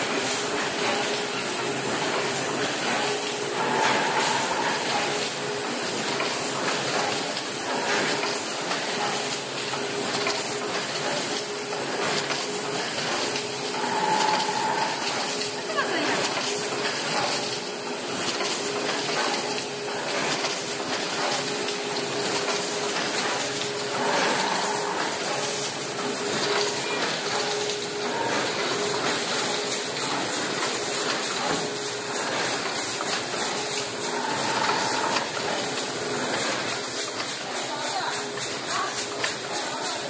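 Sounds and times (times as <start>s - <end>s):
machine hissing: 0.1s - 18.1s.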